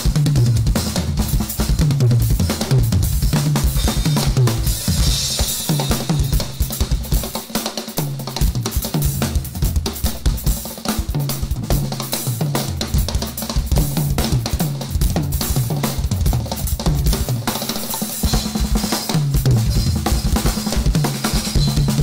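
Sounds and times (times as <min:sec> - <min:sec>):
snare and bass drum strokes: 0:00.0 - 0:22.0
ringing cymbals: 0:03.7 - 0:07.5.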